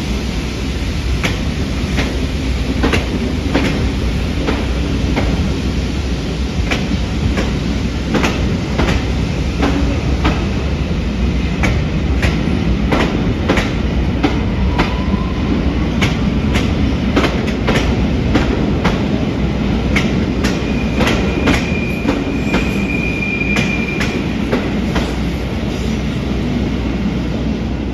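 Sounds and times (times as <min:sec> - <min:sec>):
train rumble: 0:00.0 - 0:27.9
train wheels clicking over rail joints: 0:01.2 - 0:05.5, 0:06.6 - 0:10.6, 0:11.4 - 0:15.1, 0:15.9 - 0:22.9, 0:23.5 - 0:25.4
high wheel squeal: 0:20.6 - 0:24.2.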